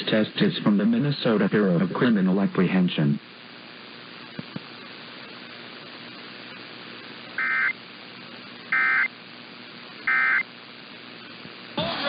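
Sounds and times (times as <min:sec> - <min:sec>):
radio static hiss: 0:00.0 - 0:12.0
buzzy digital data bursts: 0:07.3 - 0:08.1, 0:08.7 - 0:11.1.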